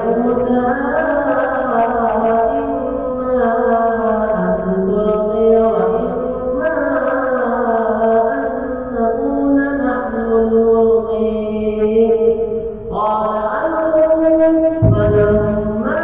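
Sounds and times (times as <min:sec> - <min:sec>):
person chanting: 0:14.8 - 0:16.0.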